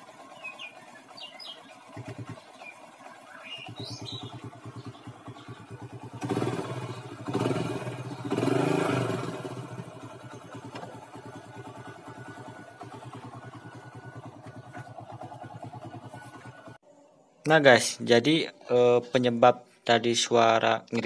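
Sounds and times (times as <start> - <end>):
motorcycle engine idling and revving: 0.0 - 16.8.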